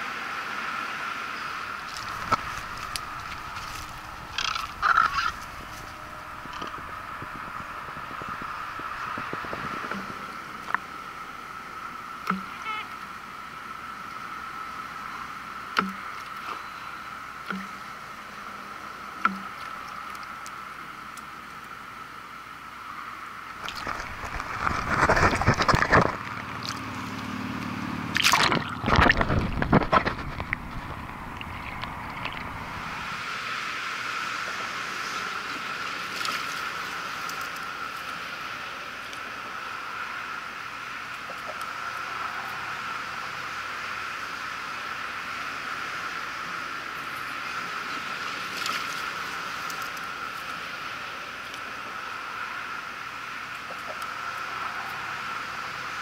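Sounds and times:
outdoor background hiss: 0.0s - 56.0s
water sloshing and gurgling: 1.6s - 12.8s, 23.4s - 40.1s.

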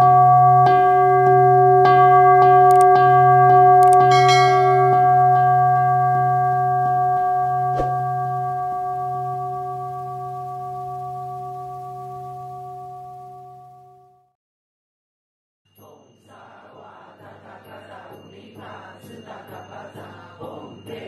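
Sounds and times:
bright shimmering chime: 0.0s - 6.7s, 15.7s - 21.0s
sustained bell tones: 0.0s - 14.0s, 15.7s - 21.0s
sharp click: 3.8s - 4.1s.

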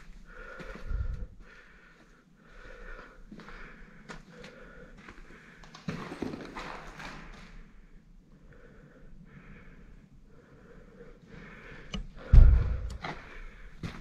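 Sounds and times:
person breathing close to microphone: 0.0s - 5.9s, 7.2s - 14.0s
loud low thump: 12.3s - 13.0s.

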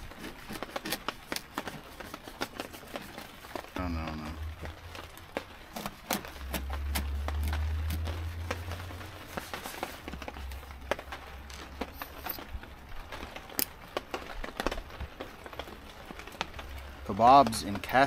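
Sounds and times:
knife sawing through bread crust: 0.0s - 3.6s
low rumble: 6.4s - 12.4s.

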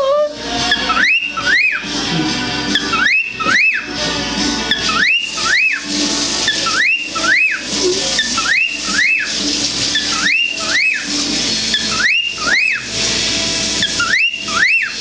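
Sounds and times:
cockatiel wolf whistle: 0.7s - 1.8s, 2.7s - 3.9s, 4.7s - 5.8s, 8.2s - 9.3s, 10.0s - 11.1s, 11.7s - 12.9s, 13.8s - 15.0s.

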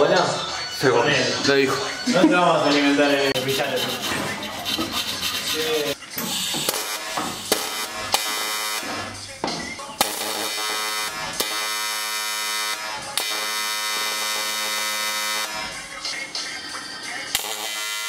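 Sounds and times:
welding arc buzzing: 6.3s - 9.0s, 10.0s - 15.6s, 17.3s - 18.0s.

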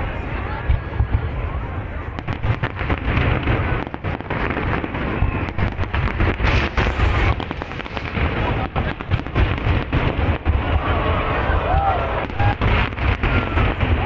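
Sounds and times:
low booms: 0.6s - 14.0s
crackling hiss: 2.3s - 10.1s
fireworks shells bursting: 2.5s - 10.4s.

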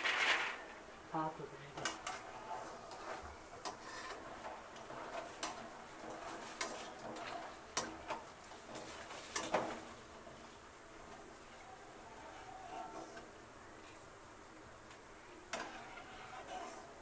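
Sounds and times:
oil sizzling: 0.0s - 17.0s
metal skimmer scraping a pan: 1.8s - 10.4s, 15.5s - 17.0s.

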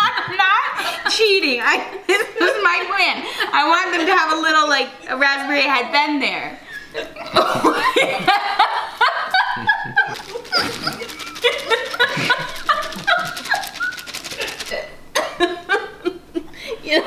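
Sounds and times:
women laughing hard: 6.7s - 17.0s.

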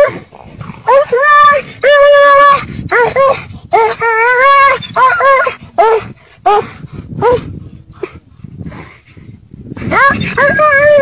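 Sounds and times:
dog yelping and whining: 0.9s - 7.4s, 9.9s - 11.0s.

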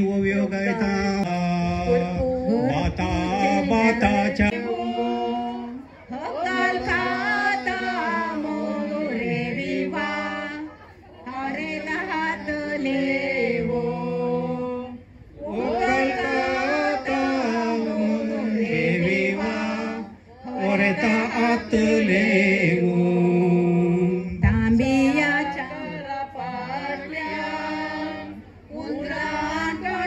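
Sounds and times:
group singing unaccompanied: 0.0s - 30.0s.

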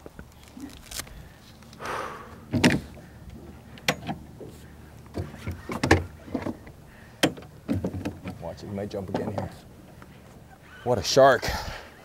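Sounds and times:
fishing gear knocks and clicks: 2.5s - 10.1s.

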